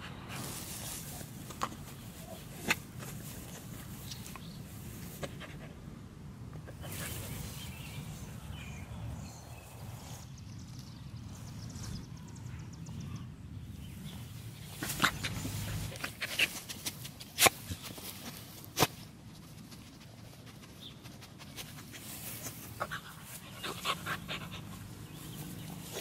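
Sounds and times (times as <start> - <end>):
dog sniffing and snorting: 6.7 - 8.0, 14.6 - 17.9, 19.6 - 26.0.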